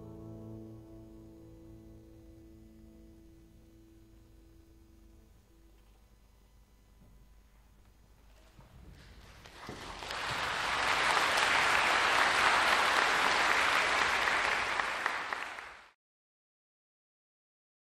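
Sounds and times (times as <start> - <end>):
audience applauding: 9.1 - 16.0.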